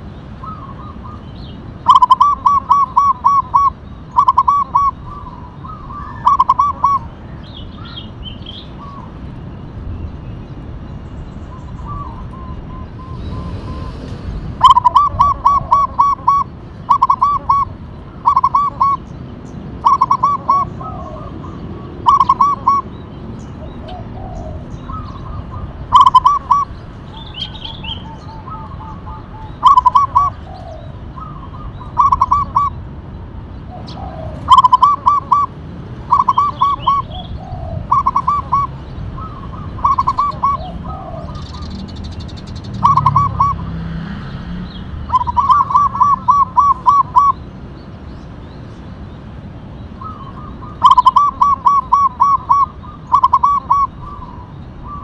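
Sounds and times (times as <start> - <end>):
dove cooing: 0.4 - 1.2, 1.8 - 7.2, 14.6 - 19.1, 19.8 - 23.0, 23.6 - 32.8, 33.7 - 41.9, 42.7 - 43.8, 45.1 - 47.4, 50.0 - 55.0.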